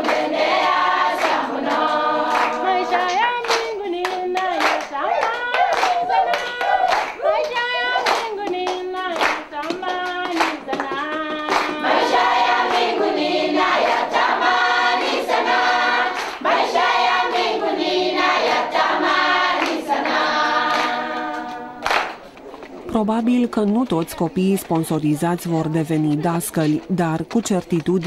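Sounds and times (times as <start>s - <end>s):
group singing in unison: 0.0s - 22.1s
people clapping in time: 0.0s - 28.0s.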